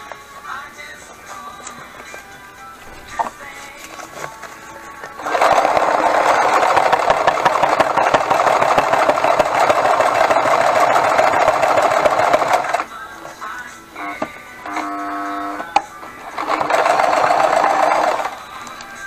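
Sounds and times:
sewing machine stitching: 5.1s - 12.9s, 14.0s - 18.6s.

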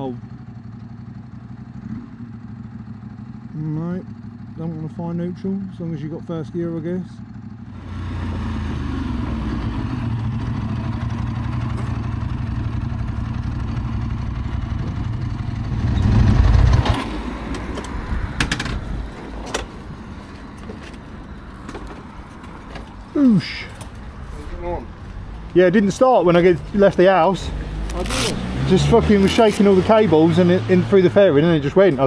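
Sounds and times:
motorcycle engine running: 0.0s - 19.2s.

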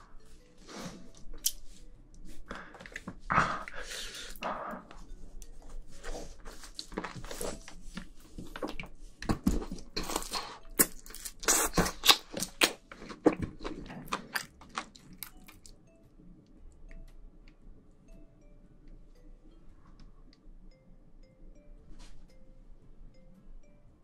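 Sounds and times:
biting and chewing: 8.4s - 15.8s.

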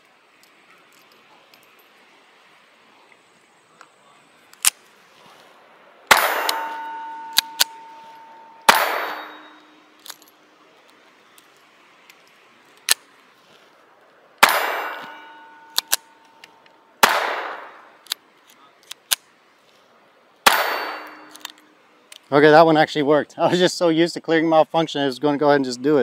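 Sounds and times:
pistol shots: 6.1s - 8.0s, 8.6s - 9.8s, 14.4s - 16.1s, 17.0s - 17.9s, 20.4s - 21.4s
steel plate ringing: 6.1s - 10.0s, 14.4s - 16.4s, 20.5s - 21.4s.

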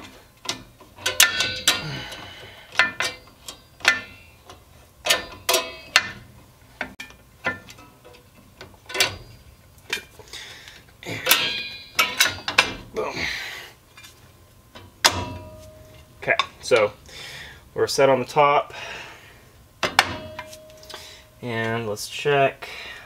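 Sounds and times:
metallic clicks of brake parts: 0.0s - 6.2s.

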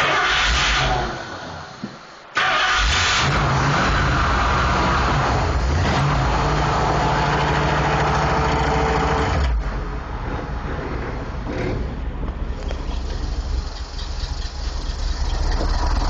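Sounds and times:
engine idling: 4.8s - 16.0s.

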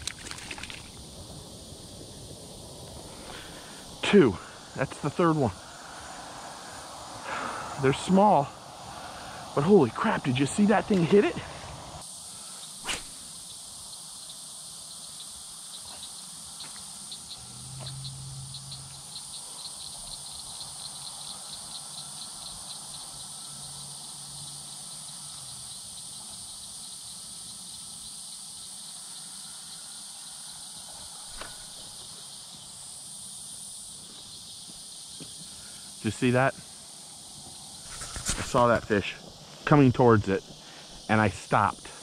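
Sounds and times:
insects hissing: 0.0s - 42.0s
rapid pulsing insect chirp: 0.0s - 42.0s
sharp click: 12.8s - 13.1s.

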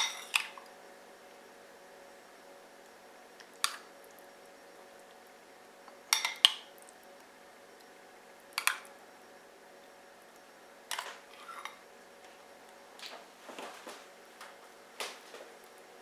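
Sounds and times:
metal spoon clinking glass bowl: 6.1s - 6.5s.

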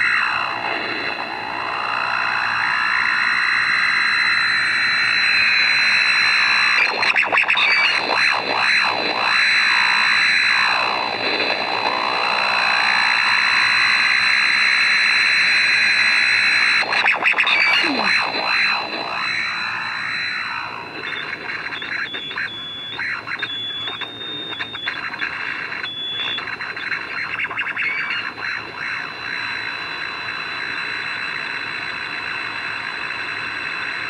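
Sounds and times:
high electrical whistle: 0.0s - 34.0s.

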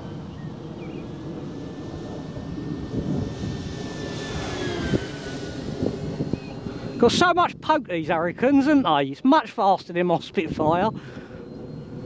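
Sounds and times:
model plane motor whining: 0.0s - 7.7s, 10.5s - 12.0s.

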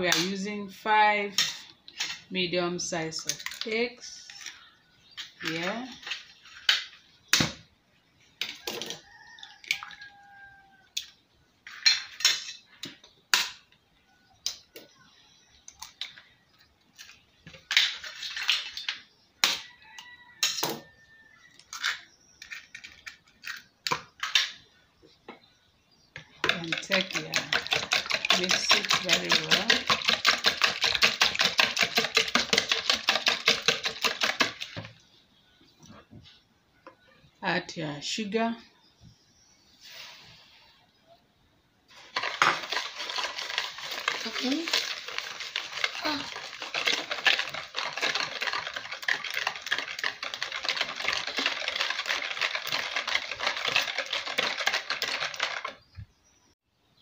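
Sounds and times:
whisk beating eggs in bowl: 26.4s - 34.8s, 42.0s - 55.8s.

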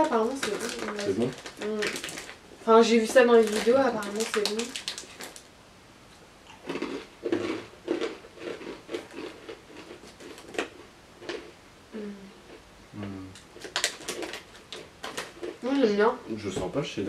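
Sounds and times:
crunching and chewing snack: 0.0s - 2.4s, 3.2s - 5.5s, 6.1s - 11.6s, 12.4s - 15.7s.

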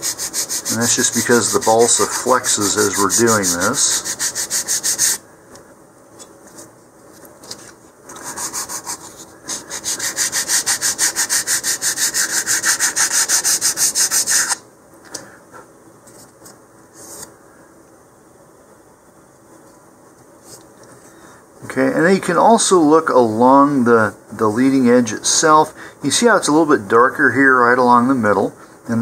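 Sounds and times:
sandpaper rubbing on wood: 0.0s - 5.2s, 8.2s - 14.6s.

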